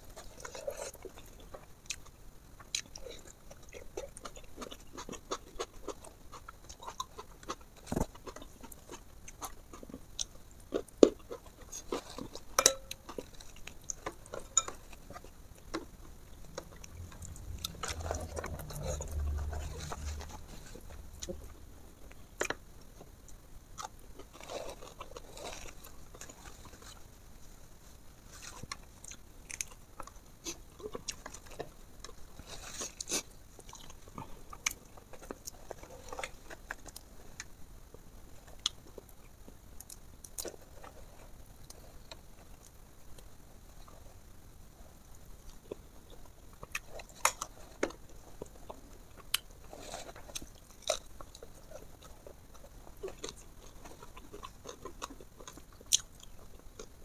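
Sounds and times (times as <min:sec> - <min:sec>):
chewing and wet mouth sounds: 0:00.1 - 0:27.1, 0:45.4 - 0:57.0
low rumble: 0:16.7 - 0:21.8.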